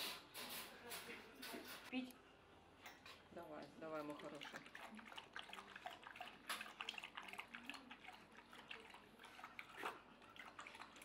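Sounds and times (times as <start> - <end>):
dog lapping water: 3.9 - 11.0.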